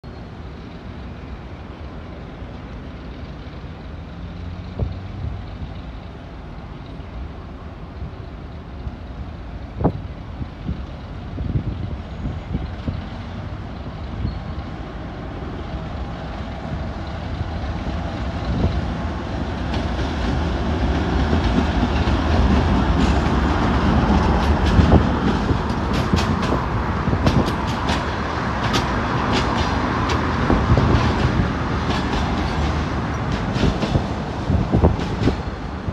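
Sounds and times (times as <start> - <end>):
diesel locomotive engine rumble: 0.0 - 35.9
wheels clicking over rail joints: 15.8 - 35.9.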